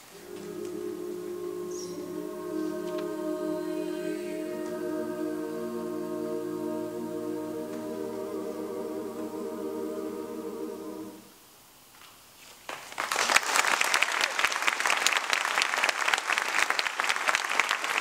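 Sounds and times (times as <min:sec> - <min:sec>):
choir holding final chord: 0:00.0 - 0:11.4
audience applause: 0:12.7 - 0:18.0.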